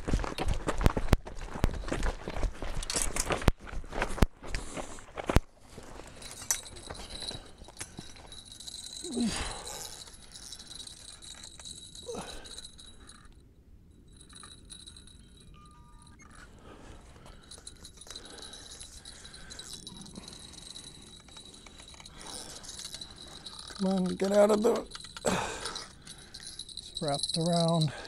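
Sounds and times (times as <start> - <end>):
fishing tackle jingling and clicking: 0.4 - 3.5, 5.8 - 28.0
faint steady high tone: 6.2 - 28.0.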